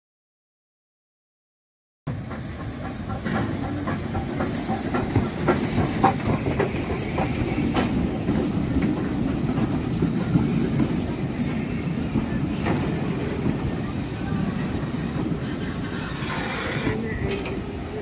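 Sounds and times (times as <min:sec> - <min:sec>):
steam hissing: 0:02.1 - 0:18.0
train wheels rumbling on rails: 0:02.1 - 0:18.0
sharp rail clicks: 0:02.3 - 0:10.9.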